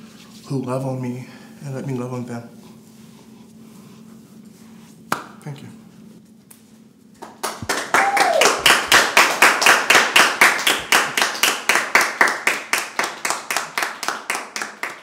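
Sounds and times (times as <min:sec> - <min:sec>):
applause: 0:07.2 - 0:15.0
close hand claps: 0:07.2 - 0:15.0
vocal cheer: 0:07.9 - 0:08.7.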